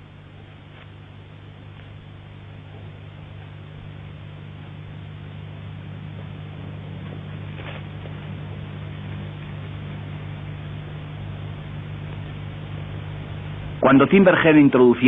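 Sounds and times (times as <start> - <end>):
electrical hum with hiss: 0.0 - 15.0
faint rustle: 5.6 - 10.4.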